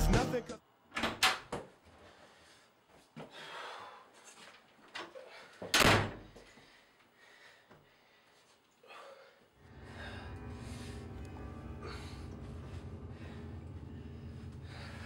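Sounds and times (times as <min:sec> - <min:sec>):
wooden door slamming shut: 0:05.8 - 0:06.3.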